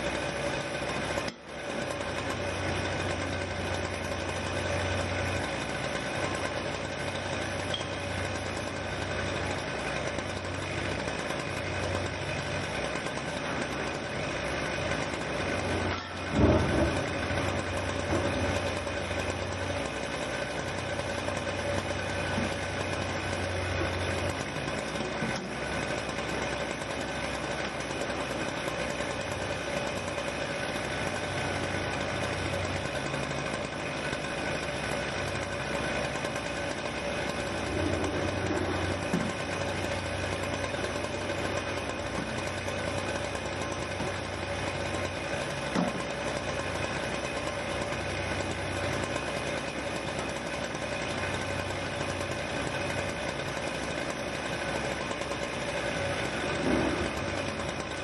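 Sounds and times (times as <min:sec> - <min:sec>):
excavator engines humming: 0:00.0 - 0:58.0
loud thump: 0:16.3 - 0:17.3.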